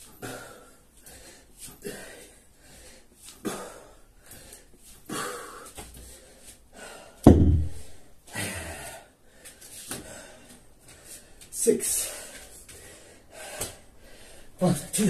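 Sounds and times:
man breathing hard: 0.0 - 14.6
heavy thump on floor: 7.3 - 7.9.

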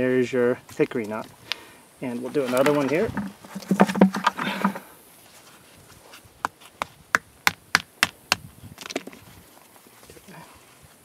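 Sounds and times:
nut knocked on rock: 7.1 - 9.2.

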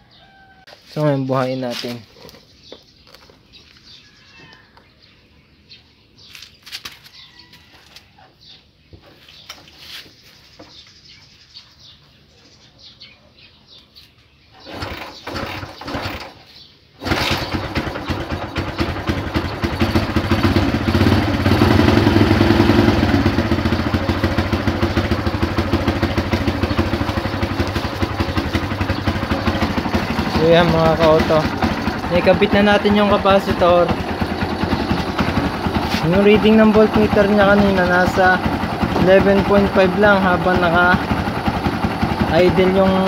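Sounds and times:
motorcycle kick-start kicks: 14.5 - 43.0
motorcycle engine running: 14.6 - 16.4, 17.0 - 43.0.

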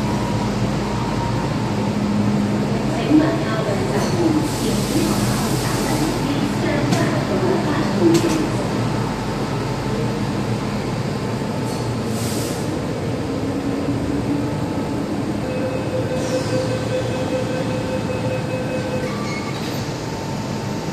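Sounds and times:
train equipment and ventilation hum: 0.0 - 20.9
warning tone: 15.4 - 19.4.

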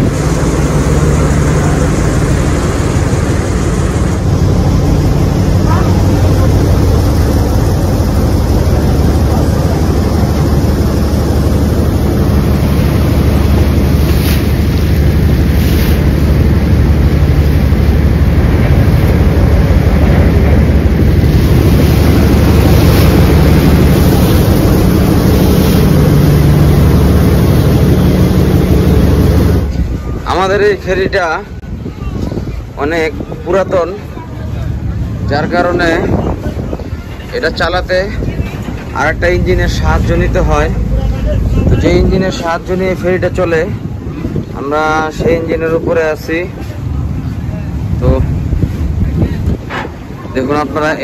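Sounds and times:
boat engine droning: 0.0 - 51.0
water rushing along hull: 0.0 - 51.0
wind gusts on microphone: 0.0 - 51.0.

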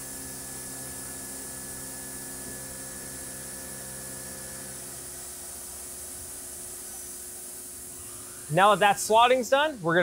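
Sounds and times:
milling machine hum with held tones: 0.0 - 10.0.

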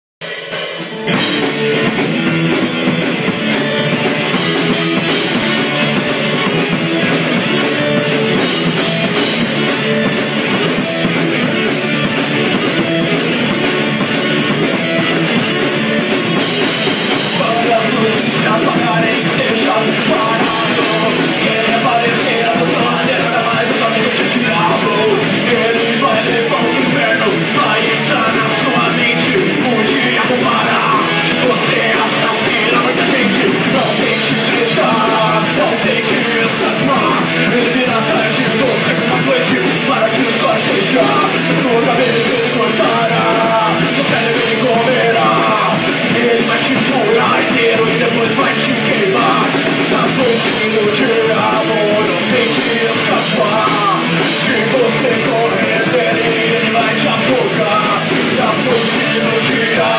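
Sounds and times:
rock band playing: 0.2 - 59.9
man singing into microphone: 16.6 - 59.9.

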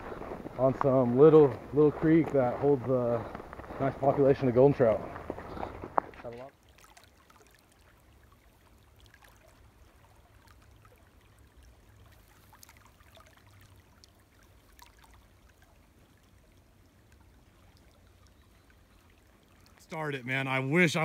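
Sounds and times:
creek babbling: 0.0 - 21.0
tiny ticks in water: 6.3 - 19.9.

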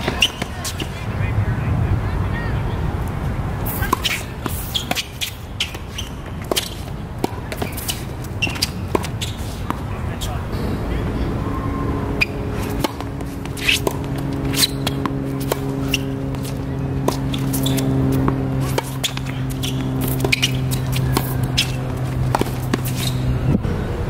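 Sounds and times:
rackets striking tennis ball: 0.0 - 1.0, 3.7 - 10.9, 11.6 - 23.4
steady low hum: 0.0 - 24.0
ball bouncing: 3.7 - 9.8, 12.2 - 23.2.

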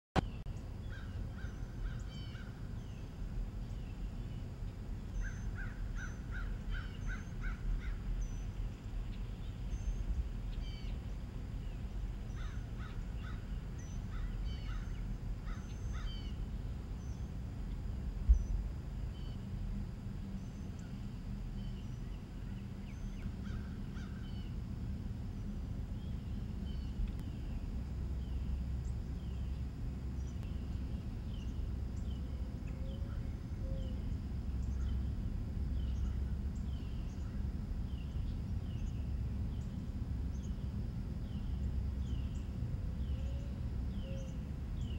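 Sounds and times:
birds chirping: 0.2 - 19.6
steady low rumble: 0.2 - 44.9.

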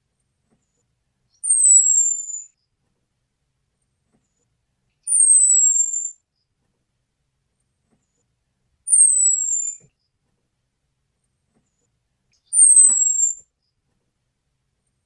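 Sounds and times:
thrush whistling call: 12.6 - 13.4.

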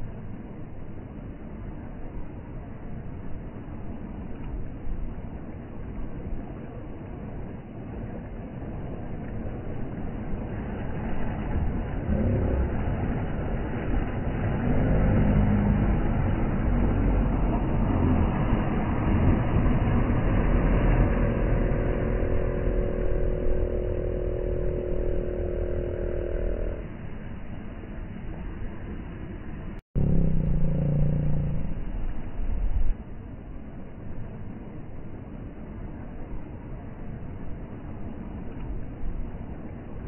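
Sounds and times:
small waves washing: 0.0 - 29.7
outboard boat motor running: 8.8 - 27.2, 30.0 - 32.7.

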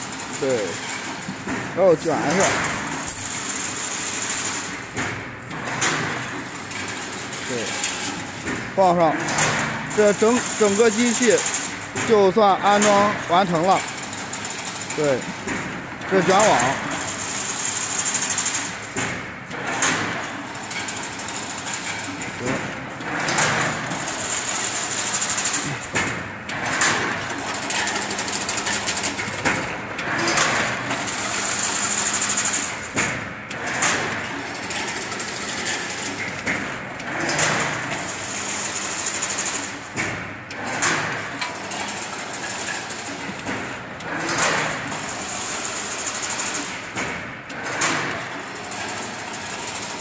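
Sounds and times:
weaving machine clattering: 0.0 - 50.0.

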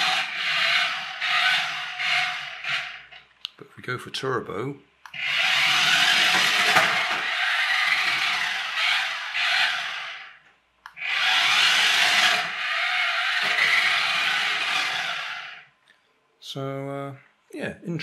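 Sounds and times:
toy car motor whirring: 0.0 - 3.2, 5.1 - 15.7.

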